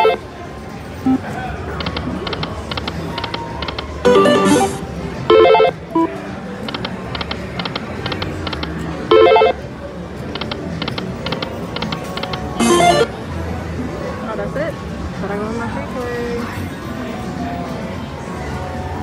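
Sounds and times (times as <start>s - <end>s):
slot machine beeping chimes: 0.0s - 0.2s, 1.1s - 1.3s, 3.9s - 6.2s, 9.1s - 9.6s, 12.6s - 13.1s.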